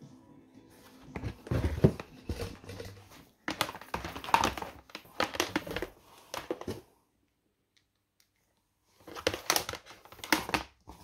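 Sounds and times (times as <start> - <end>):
hands handling plastic box: 1.0 - 6.9, 9.0 - 11.0.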